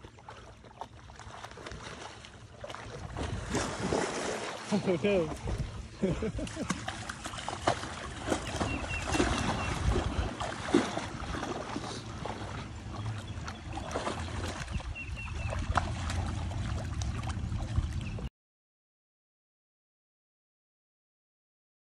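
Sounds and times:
water splashing and sloshing: 0.0 - 18.3
low rumble: 5.3 - 18.3.

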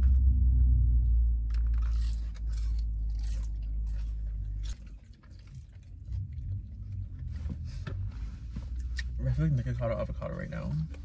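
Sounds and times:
low rumble: 0.0 - 11.0
chewing crispy food: 1.5 - 7.3.

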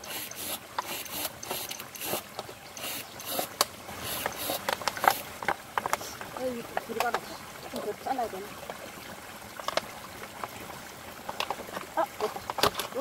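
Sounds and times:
stream rushing: 0.0 - 13.0
plastic bottle crackling: 3.4 - 7.2.

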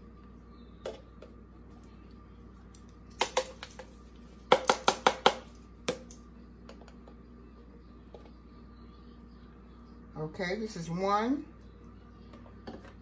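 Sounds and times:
spice container tapping on bowl: 4.5 - 6.1.

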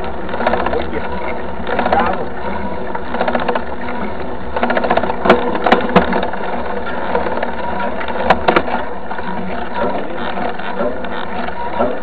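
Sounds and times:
wind and tyre rumble: 0.0 - 12.0
bike rattling knocks: 3.0 - 12.0.

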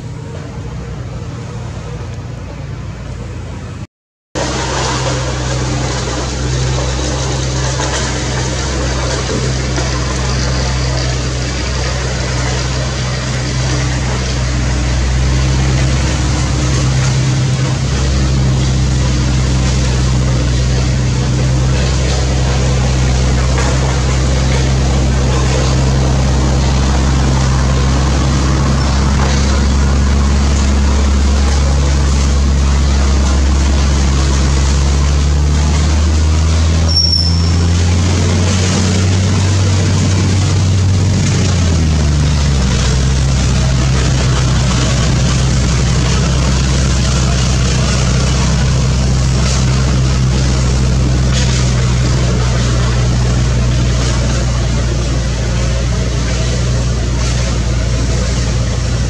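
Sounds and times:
low engine drone: 0.0 - 59.0
short high chirp: 36.9 - 37.8.

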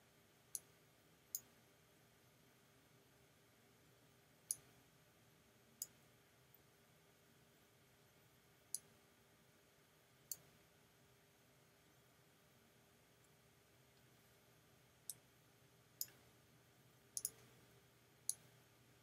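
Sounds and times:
computer mouse clicks: 10.3 - 10.5, 16.0 - 16.2, 17.1 - 17.6.

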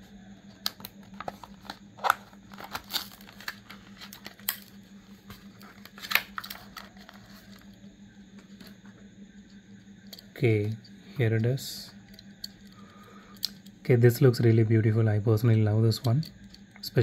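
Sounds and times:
faint steady hum: 0.0 - 17.0
plastic packaging tearing open: 1.2 - 4.6, 5.8 - 7.1.

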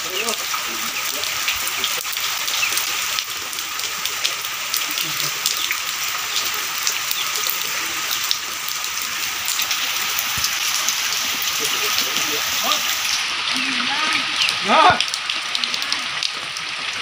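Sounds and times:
steady rain falling: 0.0 - 17.0.

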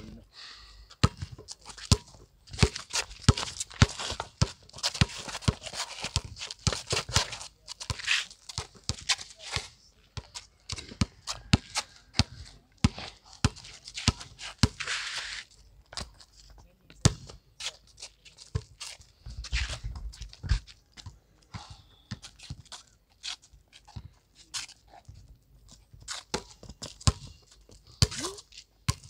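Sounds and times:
basketball bouncing on concrete: 1.0 - 9.2, 10.2 - 14.8, 26.0 - 27.4, 28.0 - 29.0
sneakers scuffing: 17.6 - 21.2.

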